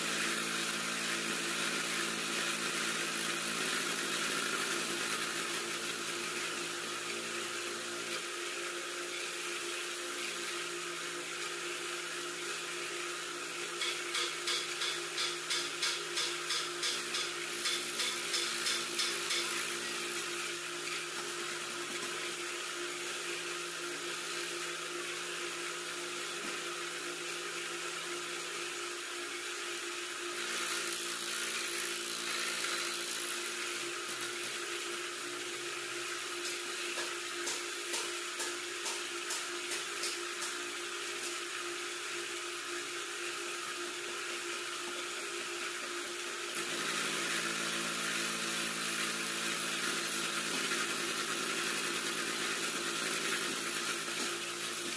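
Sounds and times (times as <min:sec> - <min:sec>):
boring machine hum and whine: 0:00.0 - 0:54.9
rhythmic machine chatter: 0:13.8 - 0:22.4.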